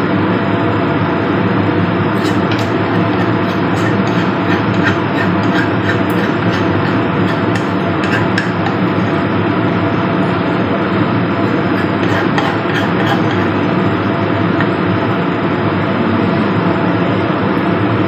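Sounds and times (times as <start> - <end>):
loud rumbling noise: 1.1 - 18.0
metal spoon scraping a mortar: 2.2 - 9.3, 11.4 - 15.4.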